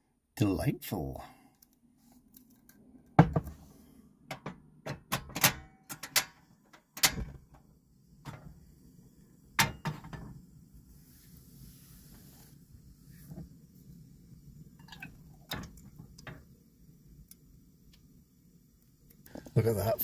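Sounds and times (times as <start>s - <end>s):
tin set down on counter: 3.2s - 3.6s, 9.6s - 10.3s
gas burner hissing: 6.1s - 20.0s.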